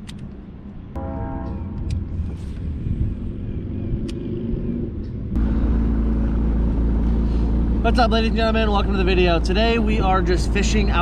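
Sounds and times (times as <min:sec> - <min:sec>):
steady low rumble: 0:00.2 - 0:11.0.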